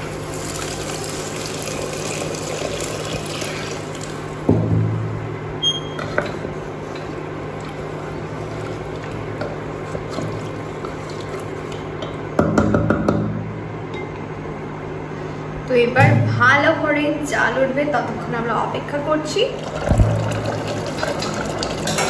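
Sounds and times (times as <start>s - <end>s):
low hum: 13.2s - 17.6s.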